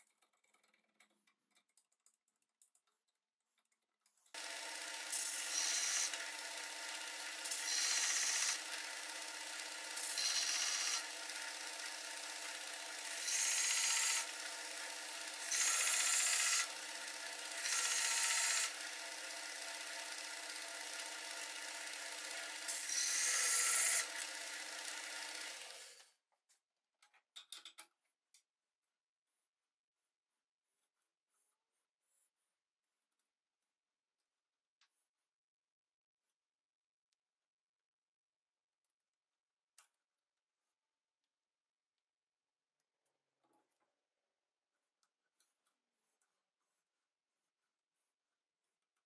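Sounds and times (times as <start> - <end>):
belt sander motor hum: 4.4 - 26.0
metal grinding on sanding belt: 4.4 - 26.0.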